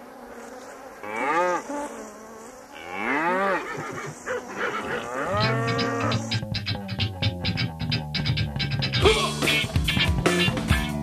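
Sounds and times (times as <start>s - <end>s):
cattle mooing: 2.8s - 6.3s.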